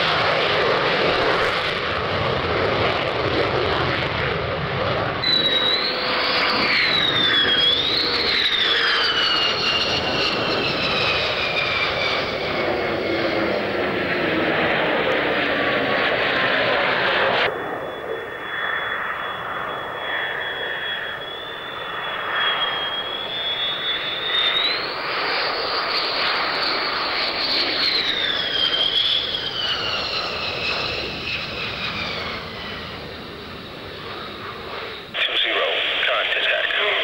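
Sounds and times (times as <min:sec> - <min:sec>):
jet engine rumble and whine: 0:00.0 - 0:37.0.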